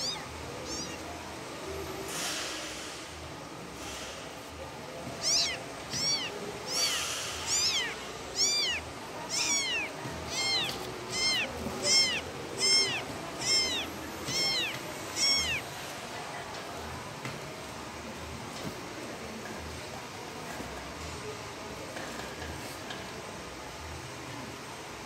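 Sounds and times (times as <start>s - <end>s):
kittens mewing: 0.0s - 1.2s, 5.0s - 15.8s.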